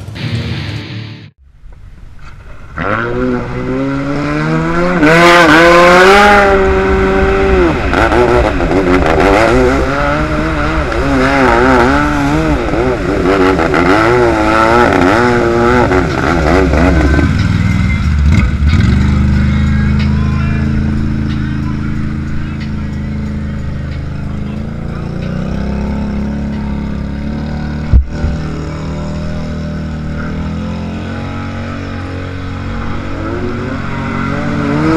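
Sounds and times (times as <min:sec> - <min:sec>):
jet ski engine revving: 0:02.9 - 0:19.3.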